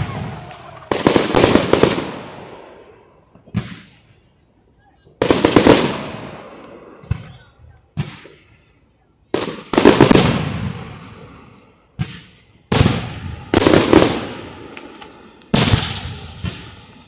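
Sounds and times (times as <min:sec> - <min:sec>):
firework shells bursting: 0:11.9 - 0:17.0.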